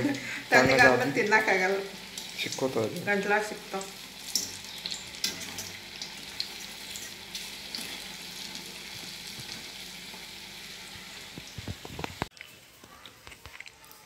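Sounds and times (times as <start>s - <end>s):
fritters sizzling in hot oil: 0.0s - 13.2s.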